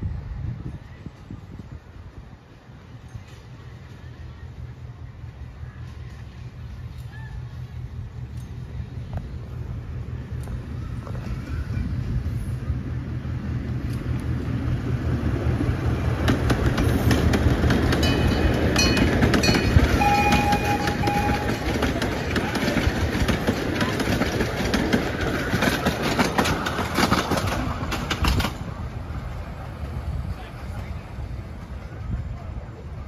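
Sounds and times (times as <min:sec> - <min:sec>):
miniature train engine humming: 0:00.8 - 0:33.0
train wheels clicking on track: 0:05.4 - 0:33.0.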